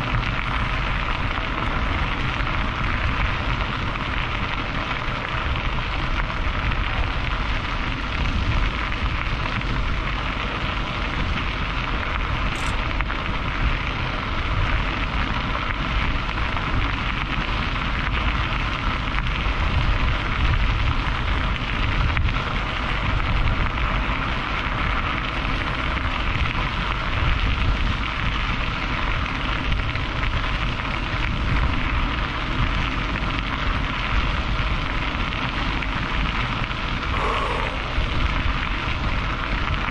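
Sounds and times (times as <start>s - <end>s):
deep rumble: 0.0s - 39.9s
wind buffeting microphone: 0.0s - 39.9s.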